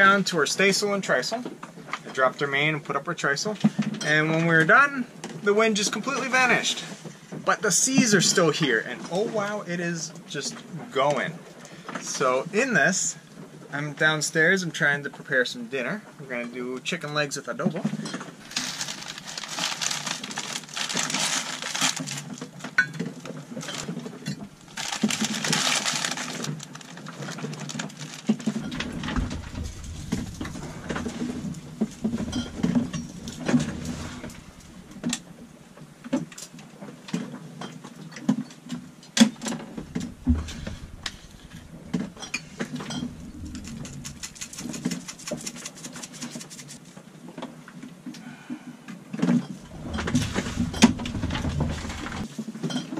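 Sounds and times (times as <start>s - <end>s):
plastic bag crinkling: 18.4s - 35.4s, 39.8s - 46.8s
low rumble: 28.5s - 36.0s, 39.7s - 45.6s, 49.6s - 52.2s
low hum: 28.6s - 36.0s, 39.7s - 45.7s, 49.6s - 52.2s.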